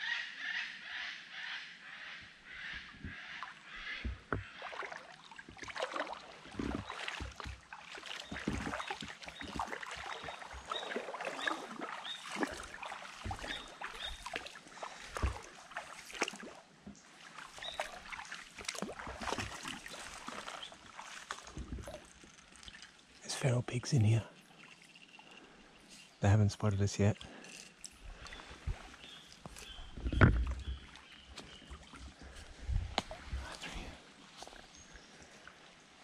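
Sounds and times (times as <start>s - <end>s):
water splashing and sloshing: 2.7s - 23.5s, 24.1s - 26.2s, 27.0s - 36.0s
low knocks and thumps: 29.8s - 31.5s.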